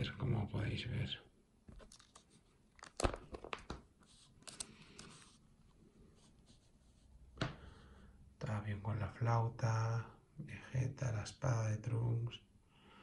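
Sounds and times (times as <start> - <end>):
plastic sleeve crinkling: 1.7 - 5.3.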